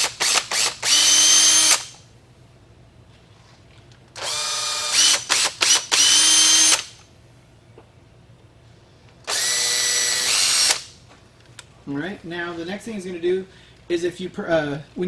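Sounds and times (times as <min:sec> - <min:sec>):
cordless drill whining: 0:00.0 - 0:01.9, 0:04.2 - 0:06.9, 0:09.2 - 0:10.9.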